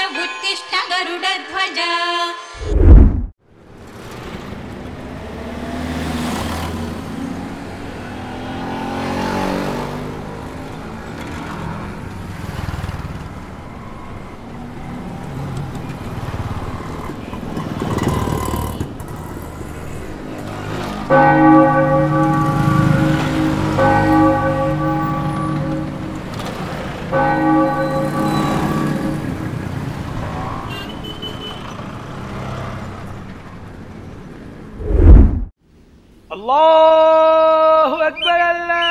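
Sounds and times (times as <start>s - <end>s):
bell-like ringing tones: 21.1s - 29.8s.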